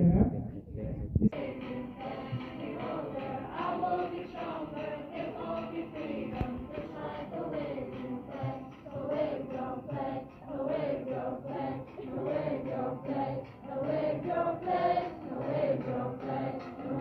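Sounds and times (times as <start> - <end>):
children's choir singing: 1.3 - 17.0.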